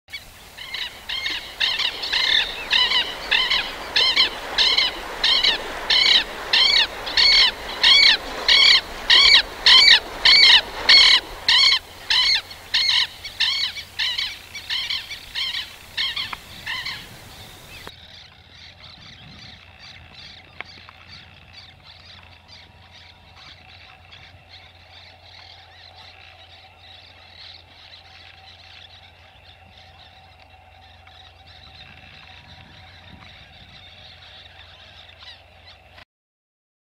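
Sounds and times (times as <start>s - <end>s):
lapwing strident call: 0.1s - 17.9s.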